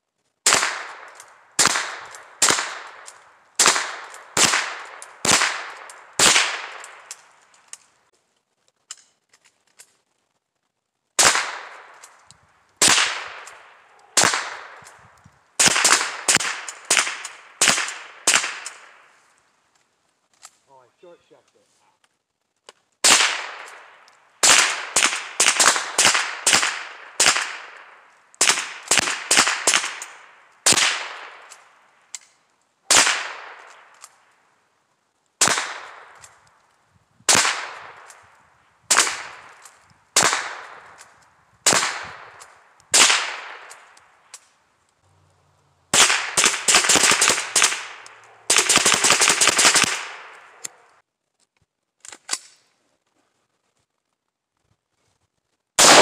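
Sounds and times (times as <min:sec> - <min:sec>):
handgun shots with echo: 0:55.8 - 0:56.0.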